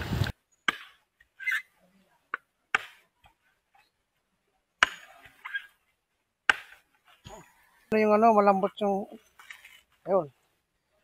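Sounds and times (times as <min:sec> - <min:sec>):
machete striking coconut: 0:04.8 - 0:05.2, 0:06.5 - 0:06.8.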